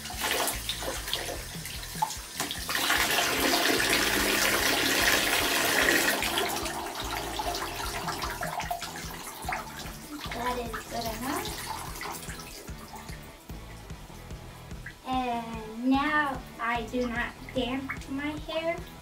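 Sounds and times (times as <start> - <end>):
tap water splashing over hair: 0.0 - 15.1, 15.9 - 19.0.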